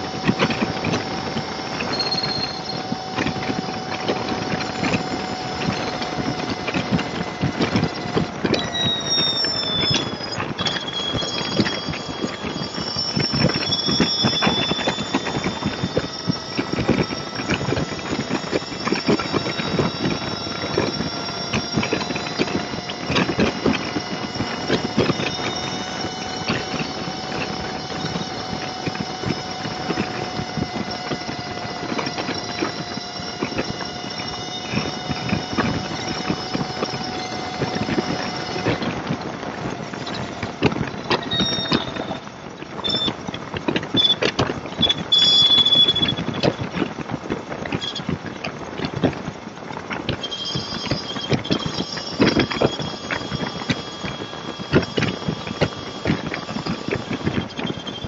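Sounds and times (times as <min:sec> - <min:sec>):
motorcycle road noise: 0:00.0 - 0:08.7
steady whine: 0:00.0 - 0:58.0.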